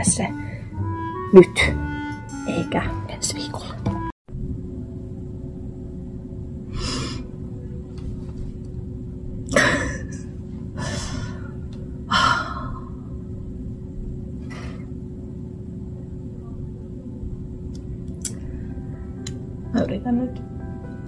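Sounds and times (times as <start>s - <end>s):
steady low hum: 0.0s - 21.0s
person breathing deeply: 6.7s - 7.4s, 10.8s - 13.1s.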